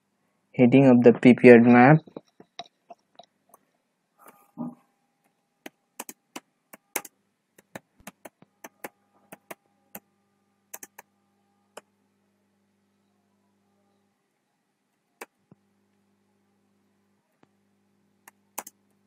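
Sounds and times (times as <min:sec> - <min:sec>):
faint steady hum: 0:00.0 - 0:19.0
keyboard keys clicking: 0:06.0 - 0:09.6, 0:10.7 - 0:11.1, 0:18.6 - 0:18.8.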